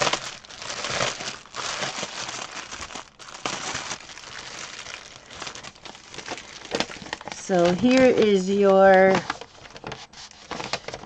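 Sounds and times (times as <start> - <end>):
plastic wrap crinkling: 0.0 - 11.0.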